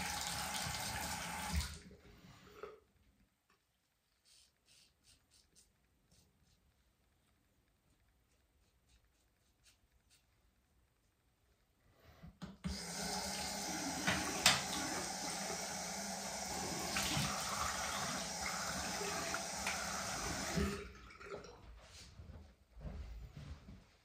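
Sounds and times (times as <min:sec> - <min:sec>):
tap running into sink: 0:12.4 - 0:15.2, 0:16.7 - 0:20.8
water splashes: 0:16.6 - 0:21.6.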